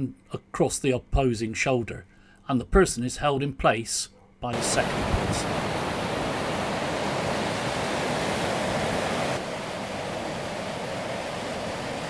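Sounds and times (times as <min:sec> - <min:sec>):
river rapids rushing over rocks: 0:04.6 - 0:12.0.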